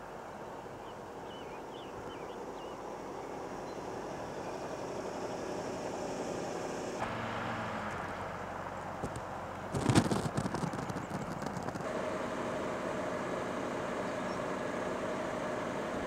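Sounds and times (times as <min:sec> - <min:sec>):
vehicle and road noise: 0:00.0 - 0:16.0
birds chirping: 0:00.3 - 0:05.4, 0:10.3 - 0:11.9.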